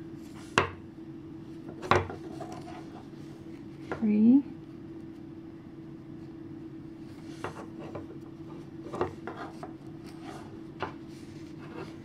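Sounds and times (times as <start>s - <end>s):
low steady hum: 0.0s - 12.0s
knitting needles scraping and tapping: 7.4s - 11.0s.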